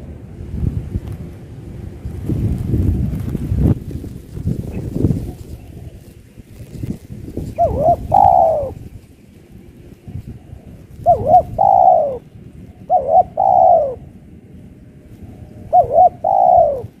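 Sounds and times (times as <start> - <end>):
dove cooing: 4.7 - 9.0, 10.0 - 14.2, 15.2 - 17.0.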